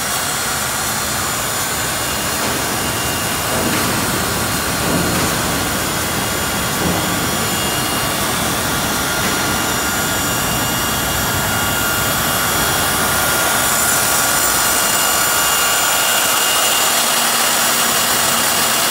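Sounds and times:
motor and gearing whine: 0.0s - 18.9s.

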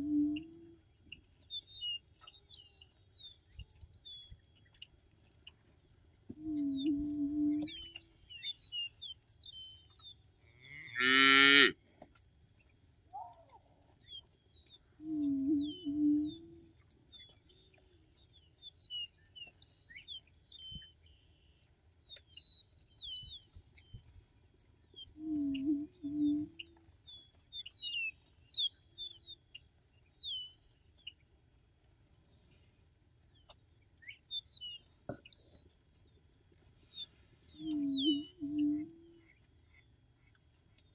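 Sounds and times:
songbirds chirping: 0.0s - 40.9s
cow mooing: 10.6s - 11.8s
songbird whistling: 15.0s - 16.7s, 37.3s - 38.9s.

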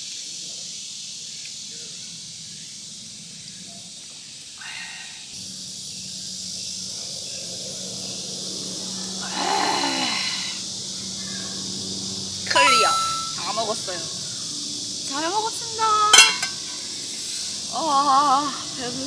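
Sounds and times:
steady high hiss: 0.0s - 19.0s
metal bowl set down: 12.5s - 13.4s, 16.2s - 16.6s.

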